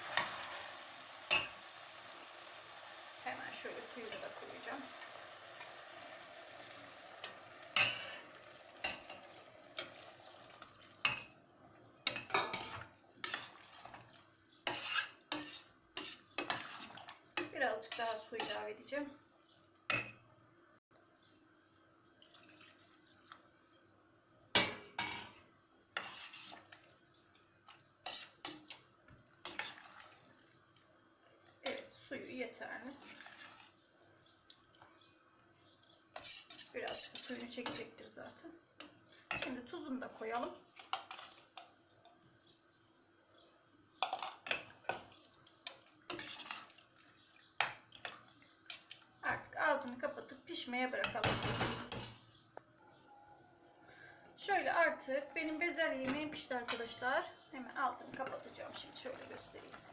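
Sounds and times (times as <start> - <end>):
water pouring into a pot: 0.0 - 11.3, 13.1 - 14.4, 22.1 - 23.5, 29.4 - 31.0, 33.0 - 33.8, 45.1 - 49.1.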